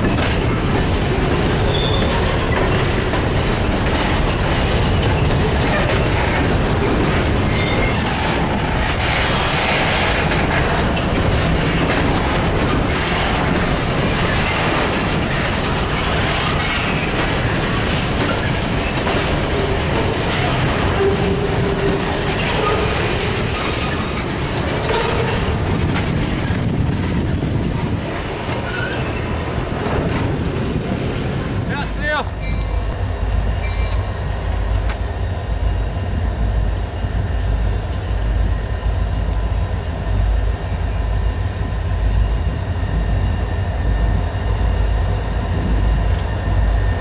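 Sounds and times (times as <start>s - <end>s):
wheels squealing: 0.0s - 26.8s, 28.4s - 30.4s
clicking over rail joints: 0.0s - 30.4s
train wheels rumbling on rail: 0.0s - 47.0s.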